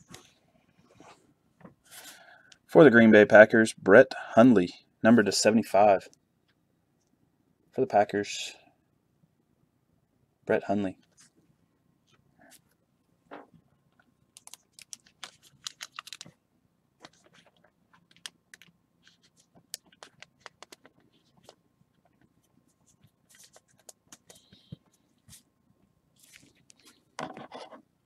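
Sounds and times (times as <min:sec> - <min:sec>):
cards and packaging clicking: 0:14.3 - 0:16.4, 0:17.0 - 0:21.6
foil wrapper crinkling: 0:14.4 - 0:16.4.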